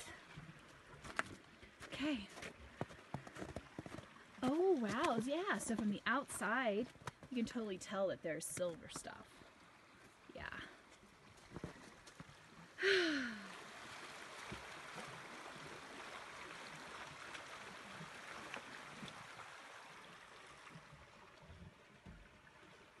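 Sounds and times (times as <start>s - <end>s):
creek water rushing: 9.3s - 23.0s
breathy sigh-like voice: 12.8s - 13.6s.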